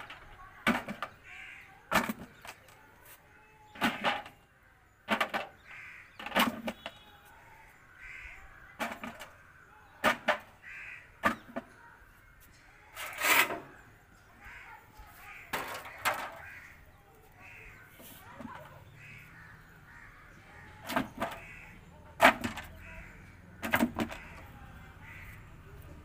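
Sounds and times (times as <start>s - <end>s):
crows cawing: 1.1s - 1.9s, 5.6s - 6.4s, 7.4s - 11.5s, 14.4s - 25.8s.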